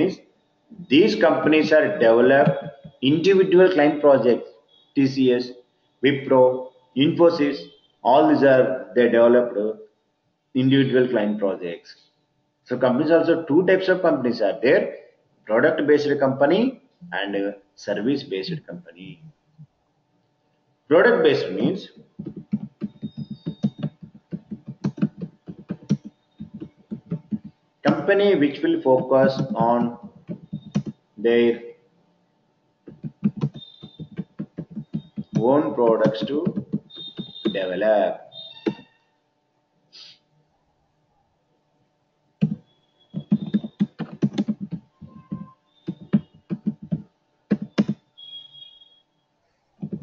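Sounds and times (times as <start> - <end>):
keyboard key clicks: 22.2 - 28.0, 32.9 - 35.4, 43.2 - 48.0.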